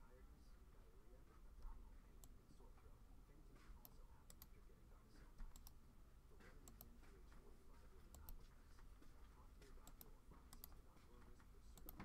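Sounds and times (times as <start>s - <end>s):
low room hum: 0.0s - 12.0s
keyboard and mouse clicking: 3.8s - 4.5s, 5.4s - 5.8s, 9.8s - 12.0s.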